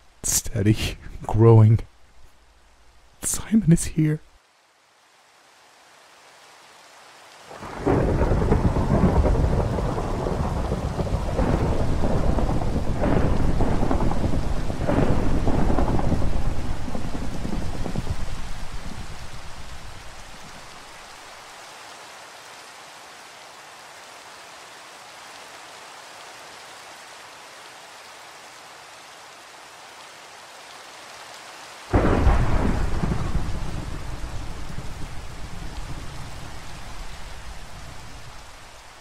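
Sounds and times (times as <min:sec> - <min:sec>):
steady rain falling: 0:00.0 - 0:39.0
thunderclap with low rumble: 0:07.6 - 0:20.7, 0:31.9 - 0:38.5.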